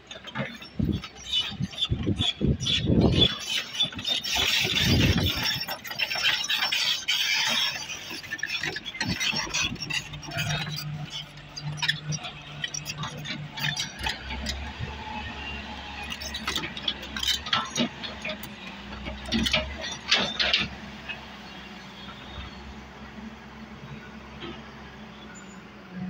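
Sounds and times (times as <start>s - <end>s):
diesel engine hum: 0.0s - 26.0s
steel bucket scraping earth: 3.1s - 20.8s.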